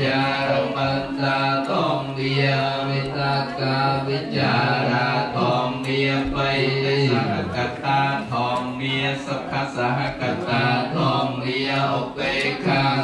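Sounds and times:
voices chanting on a low pitch: 0.0 - 13.0.

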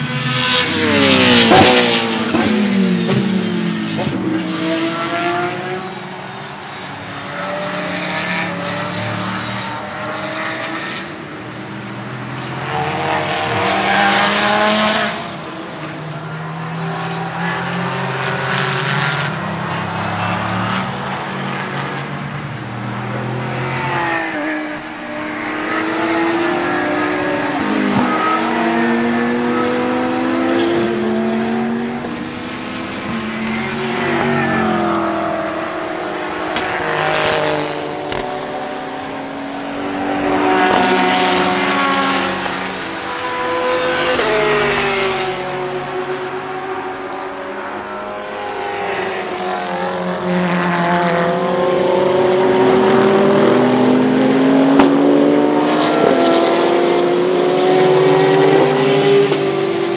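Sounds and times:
racing cars passing: 0.0 - 59.9.

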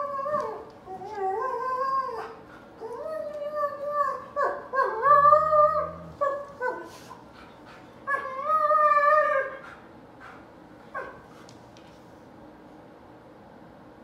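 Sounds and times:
dogs howl-like whining: 0.0 - 7.0, 8.1 - 9.6
dog low growl: 4.9 - 6.9
dog yipping: 8.1 - 9.7, 10.9 - 11.2.

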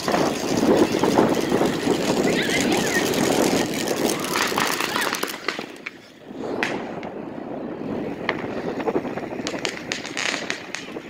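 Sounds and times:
bicycle clicks and rattles: 0.0 - 6.1
bicycle tyres rolling rumble: 0.0 - 11.0.

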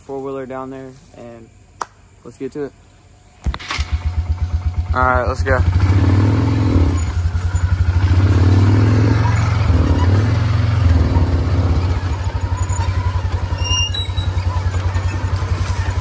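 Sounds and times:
quad engine running: 3.5 - 16.0.

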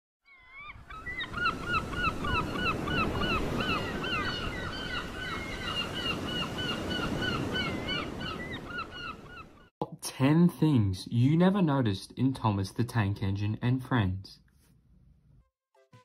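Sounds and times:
flock of birds calling: 0.4 - 9.7.

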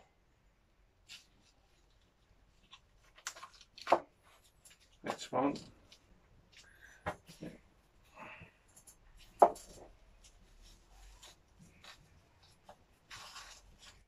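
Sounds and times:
potting soil rustling: 9.0 - 14.0.

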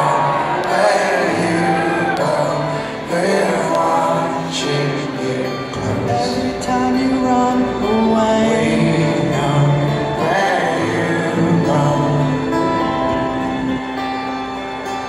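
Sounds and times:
acoustic guitar: 0.0 - 15.0
live band slow song: 0.0 - 15.0.

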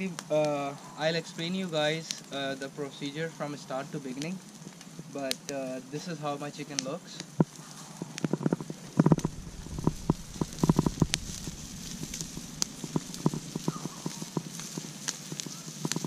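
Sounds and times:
campfire crackling and popping: 0.0 - 16.0
low thumps: 8.5 - 14.6.

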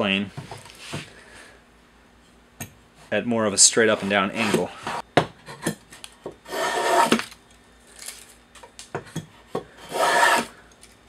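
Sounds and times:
plane rasping along wood: 3.9 - 5.0, 6.5 - 7.2, 9.8 - 10.5.

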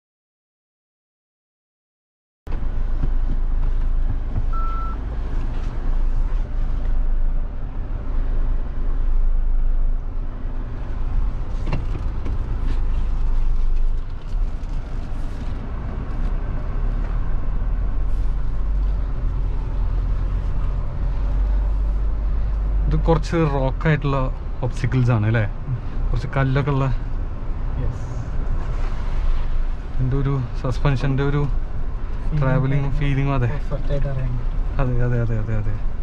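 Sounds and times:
diesel engine rumbling: 2.5 - 36.0
short beep: 4.5 - 5.0.

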